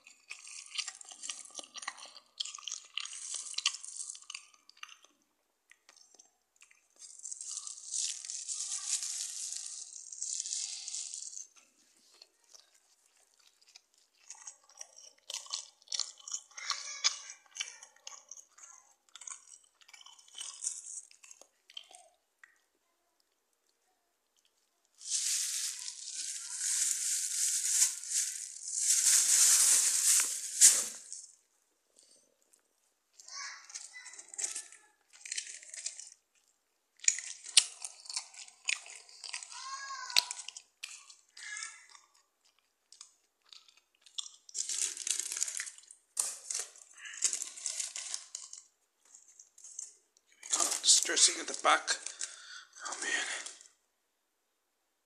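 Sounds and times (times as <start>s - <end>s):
plastic bag crinkling: 0.3s - 5.0s, 7.0s - 17.5s, 19.2s - 22.1s, 25.0s - 31.4s, 33.6s - 41.2s, 42.9s - 53.8s.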